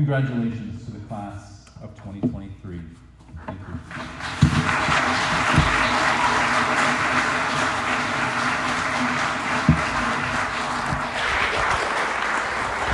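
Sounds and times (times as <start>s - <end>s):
audience applauding: 3.9s - 12.9s.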